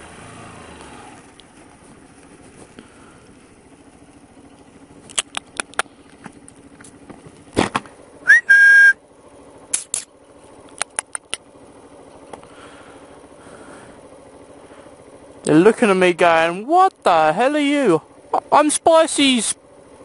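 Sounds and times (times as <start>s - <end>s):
motorcycle engine idling: 0.0s - 20.0s
sharp clicks: 5.0s - 7.0s, 9.7s - 11.4s
person whistling: 8.2s - 9.0s.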